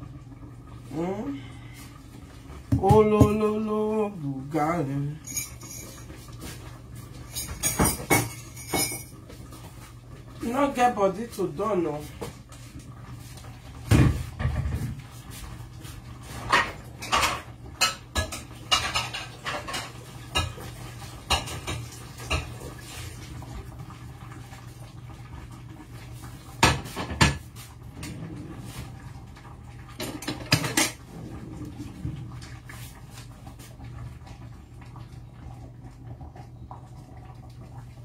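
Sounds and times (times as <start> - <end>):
low steady hum: 0.0 - 38.0
pots and dishes clinking: 5.2 - 9.4, 16.3 - 22.7, 29.9 - 31.1.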